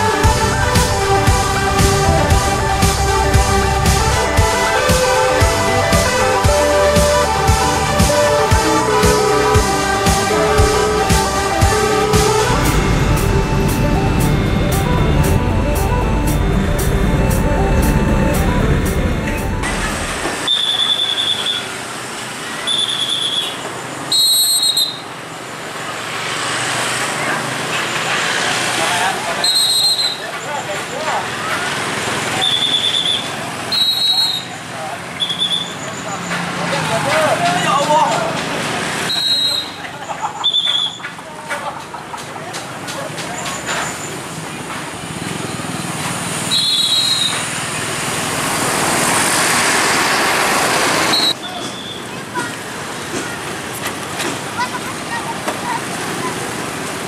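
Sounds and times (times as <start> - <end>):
brief high tone: 0.0 - 20.6
coach bus driving past: 0.0 - 24.1, 25.0 - 57.0
road traffic noise: 0.0 - 57.0
high-pitched whistle blasts: 19.6 - 21.8, 22.6 - 25.1, 29.4 - 30.3, 32.4 - 34.6, 35.2 - 35.9, 39.1 - 39.8, 46.5 - 47.6, 51.1 - 52.1.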